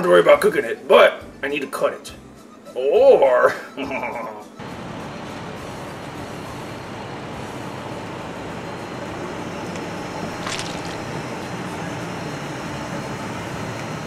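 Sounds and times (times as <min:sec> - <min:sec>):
car engine running: 0:04.6 - 0:13.8.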